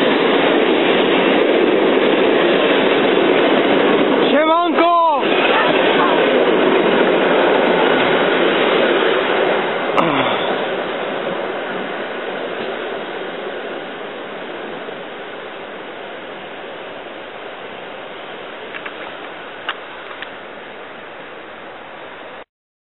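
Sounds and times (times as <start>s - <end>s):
train rolling on rails: 0.0s - 22.4s
short rail clicks: 18.7s - 20.4s.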